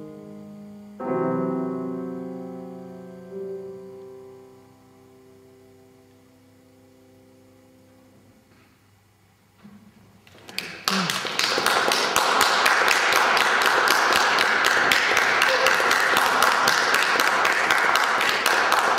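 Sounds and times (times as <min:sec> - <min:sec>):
audience applause: 0:10.3 - 0:18.9.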